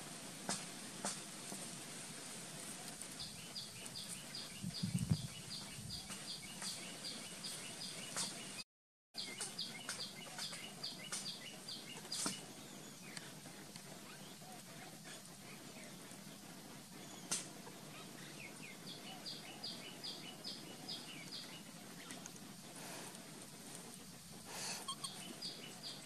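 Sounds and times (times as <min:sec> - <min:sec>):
bird chirping rapidly: 0:24.8 - 0:26.0.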